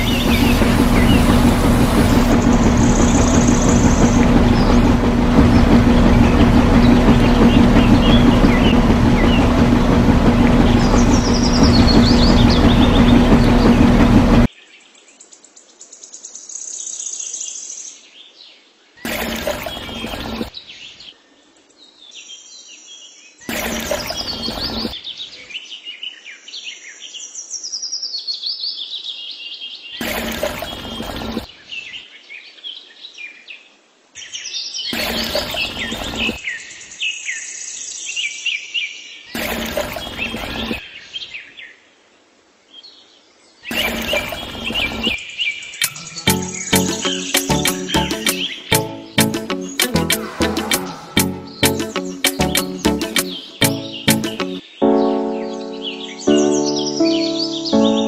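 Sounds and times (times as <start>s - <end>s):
engine-like drone: 0.0s - 14.5s, 19.1s - 20.5s, 23.5s - 25.0s, 45.8s - 54.6s
loud noise bursts: 0.0s - 14.5s, 45.8s - 54.6s.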